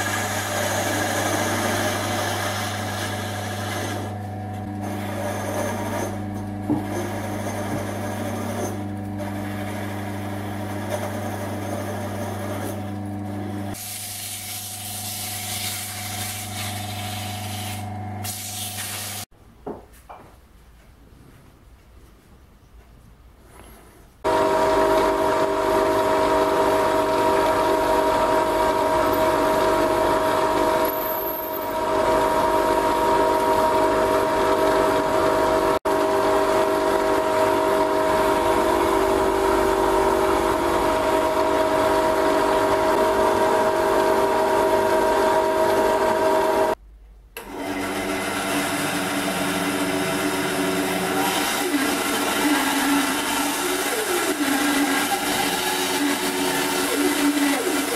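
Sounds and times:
band saw cutting wood: 0.0 - 13.0, 13.7 - 19.2, 47.4 - 57.9
drill press motor whining: 24.3 - 46.8, 47.4 - 57.9.

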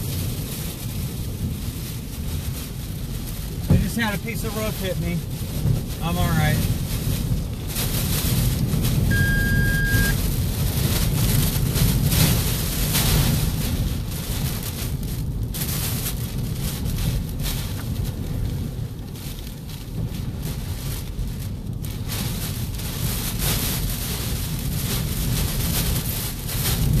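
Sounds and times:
wind buffeting microphone: 0.0 - 9.3, 10.0 - 27.0
rain lashing a vehicle: 0.0 - 27.0
strong wind: 0.0 - 27.0
steady tone: 9.1 - 10.2.

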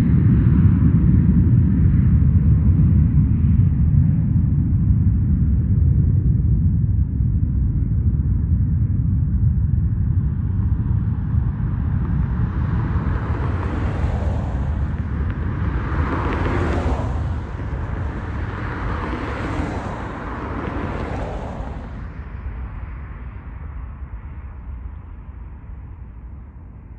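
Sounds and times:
steady low rumble: 0.0 - 26.9
cars passing close by: 10.5 - 26.9.

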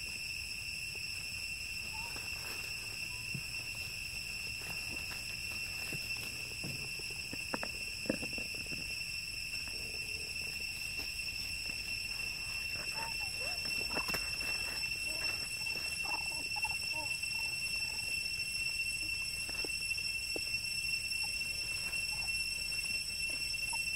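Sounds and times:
high insect drone: 0.0 - 23.9
rustles on dry leaves: 1.7 - 7.2.

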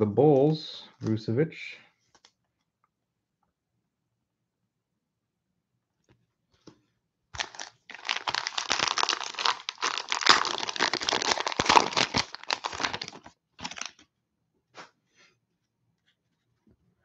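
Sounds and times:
plastic wrapper tearing and crinkling: 7.4 - 14.0.

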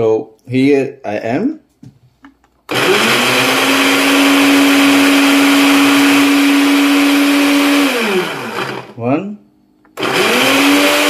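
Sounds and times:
blender motor running: 2.7 - 9.0, 10.0 - 11.0
blender winding down: 2.7 - 9.0, 10.0 - 11.0.

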